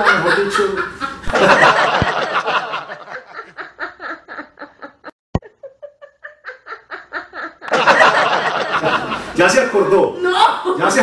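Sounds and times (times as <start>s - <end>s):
people talking: 0.0s - 0.9s
woman laughing: 3.0s - 9.1s.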